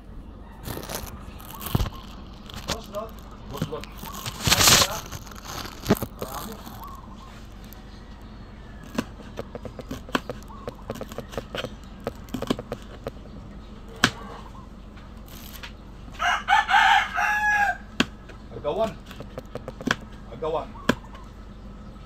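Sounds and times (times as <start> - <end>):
rooster crowing: 6.8 - 9.8, 16.1 - 18.0.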